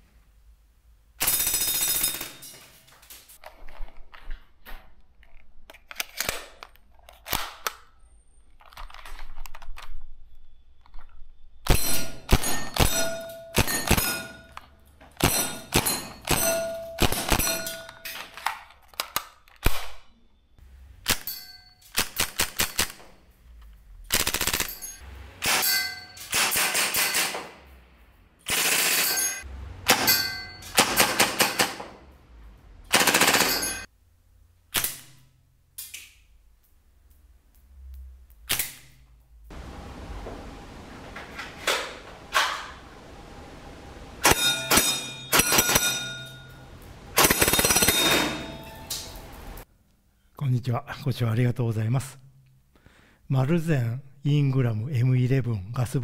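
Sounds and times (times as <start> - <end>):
gun handling clicks: 5.2 - 7.9, 18.2 - 19.9
steel target plates ringing: 11.7 - 14.6, 15.2 - 18.0, 21.2 - 21.9, 24.6 - 27.3, 28.7 - 31.8, 33.0 - 33.9, 44.2 - 49.3
airsoft gun rapid firing: 24.1 - 24.8, 26.3 - 27.4, 28.5 - 29.2, 30.8 - 31.9, 32.9 - 33.7.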